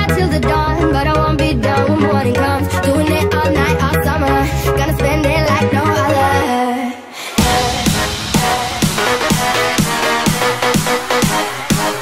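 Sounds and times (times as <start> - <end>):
electronic dance music: 7.3 - 12.0
steady kick drum: 7.4 - 12.0.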